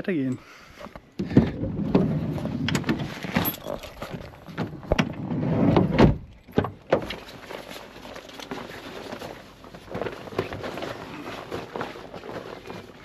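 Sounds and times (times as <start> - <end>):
fabric bag rustling: 2.3 - 4.9, 7.2 - 13.0.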